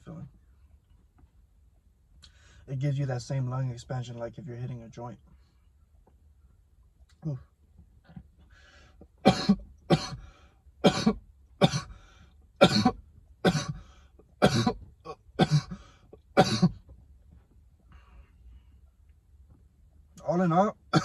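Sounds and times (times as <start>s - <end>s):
man coughing: 9.2s - 10.2s, 10.8s - 12.0s, 12.6s - 16.8s.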